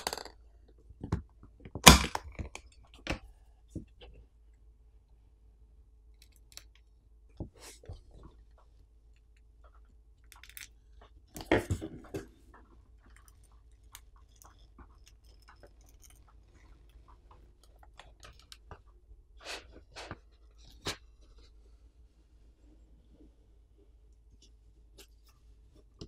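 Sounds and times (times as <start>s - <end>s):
adhesive clicks and crackles: 9.1s - 11.5s, 12.6s - 19.0s.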